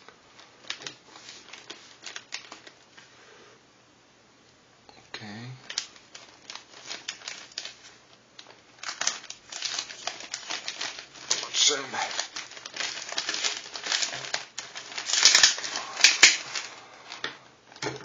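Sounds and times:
plastic mailer crinkling: 0.0s - 3.0s, 5.6s - 18.0s
scissors snipping plastic: 15.0s - 18.0s.

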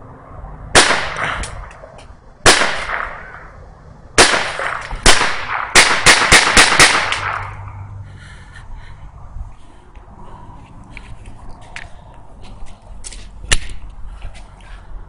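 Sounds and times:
pistol shots: 0.8s - 1.7s, 2.4s - 3.5s, 4.2s - 7.6s.

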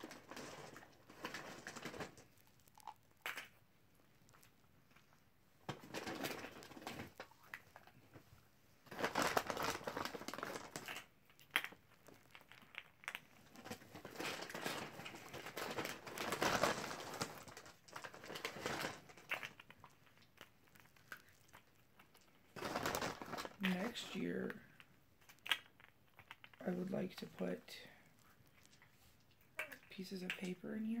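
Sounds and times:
candy wrappers crinkling: 0.0s - 5.1s, 8.8s - 31.0s.

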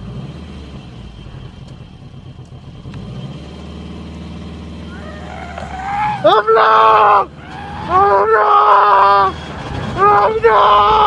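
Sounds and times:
car engine running: 0.0s - 11.0s
person crying out: 4.9s - 7.3s, 7.9s - 9.3s.

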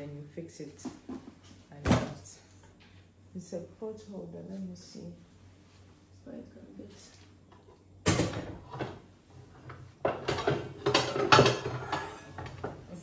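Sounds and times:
cookware clattering and rattling: 9.6s - 13.0s.

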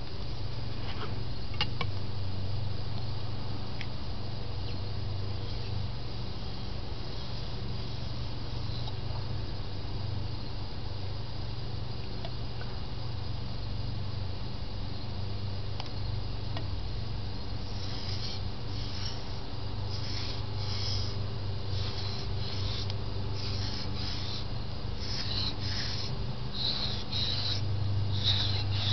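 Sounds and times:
knife scraping on whetstone: 17.6s - 27.6s, 28.2s - 28.9s.

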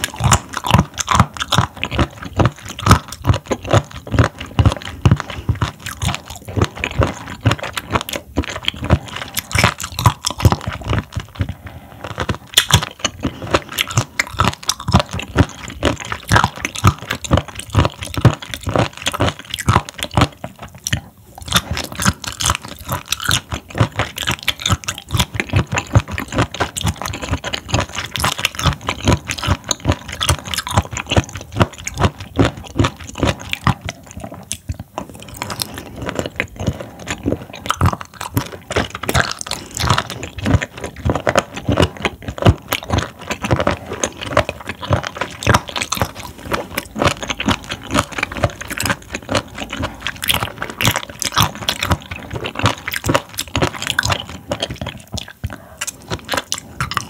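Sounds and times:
close chewing with crunchy clicks: 0.0s - 57.0s.

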